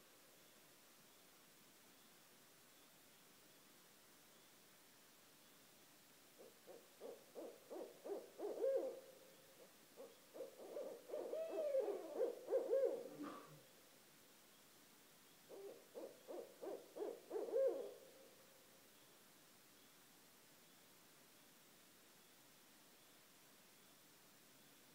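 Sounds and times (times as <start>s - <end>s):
owls hooting: 6.7s - 9.1s, 10.0s - 13.6s, 15.5s - 18.0s.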